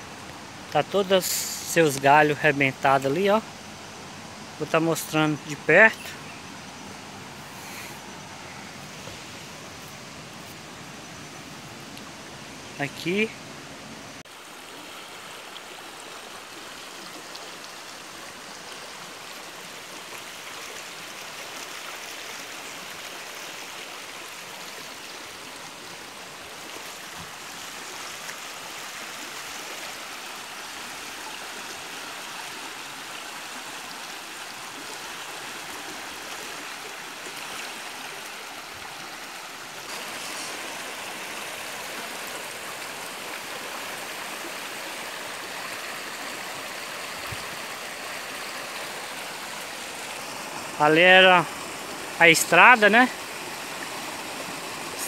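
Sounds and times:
stream water rushing: 0:00.0 - 0:55.0.

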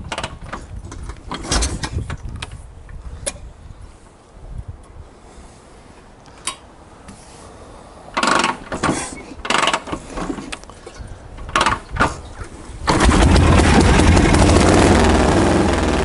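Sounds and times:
motorcycle engine kick-started: 0:08.2 - 0:10.4, 0:12.8 - 0:16.0
motorcycle engine running: 0:12.9 - 0:16.0.

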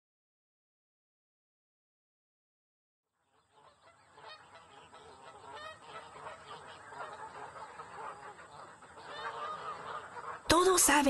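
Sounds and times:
chorus of bird calls: 0:03.2 - 0:11.0.

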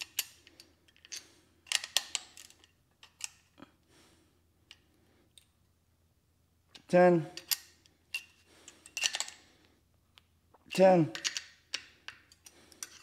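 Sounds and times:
steel wrenches clinking: 0:00.0 - 0:03.5, 0:06.8 - 0:09.4, 0:10.7 - 0:13.0.

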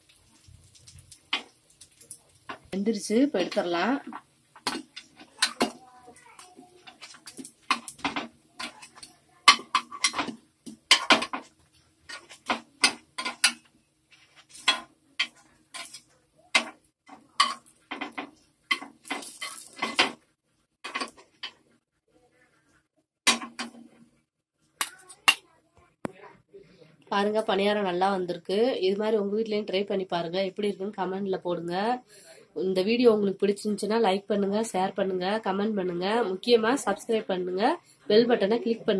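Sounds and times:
metal spoon clinking and scraping pan: 0:01.2 - 0:20.2, 0:20.8 - 0:21.6.

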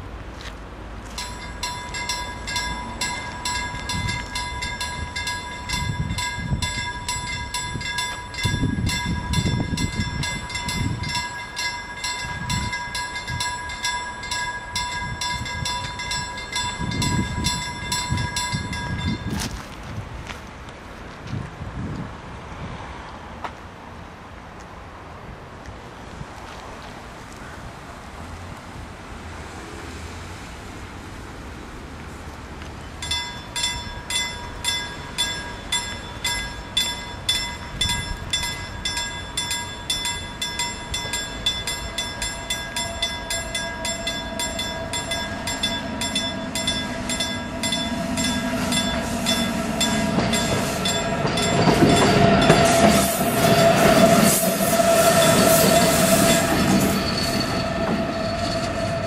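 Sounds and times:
electric locomotive passing: 0:00.0 - 0:25.4, 0:26.0 - 0:59.0
level crossing warning bell: 0:01.0 - 0:19.7, 0:33.0 - 0:59.0.

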